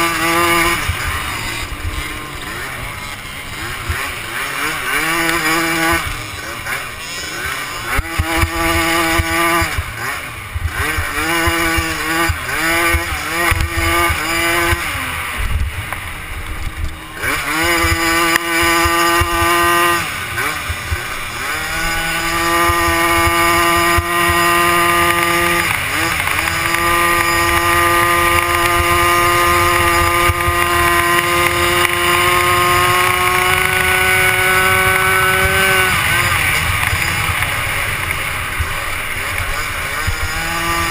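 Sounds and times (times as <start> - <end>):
small quad engine revving: 0.0 - 40.9
wind buffeting camera: 8.2 - 20.0, 20.6 - 40.9.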